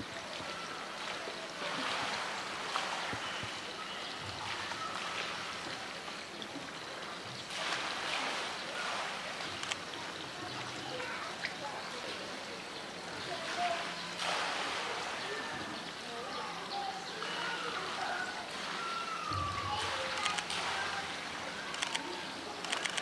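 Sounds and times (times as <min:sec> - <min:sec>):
running water rushing: 0:00.0 - 0:23.0
faint clicks: 0:09.5 - 0:09.9, 0:21.7 - 0:23.0.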